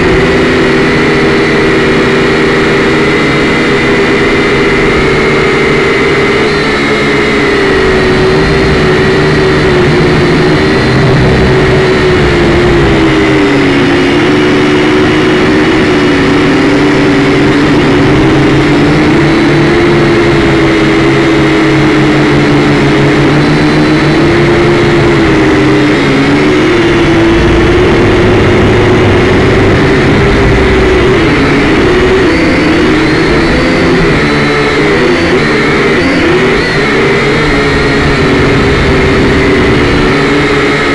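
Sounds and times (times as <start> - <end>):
drone motors whining: 0.0 - 40.9.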